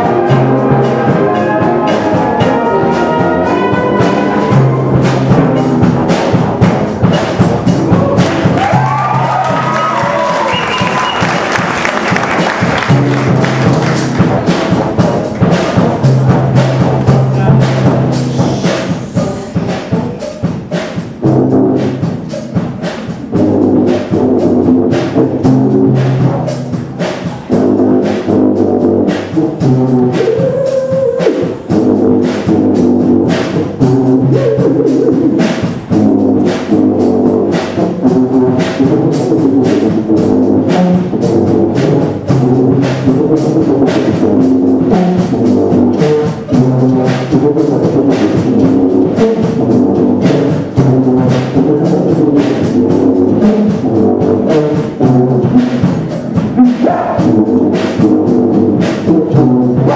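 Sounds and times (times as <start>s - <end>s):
sousaphone bass line: 0.0s - 20.6s, 29.5s - 37.6s, 41.0s - 53.8s, 54.4s - 59.9s
steady drum beat: 0.0s - 59.9s
wind band playing brass-heavy piece: 0.0s - 59.9s.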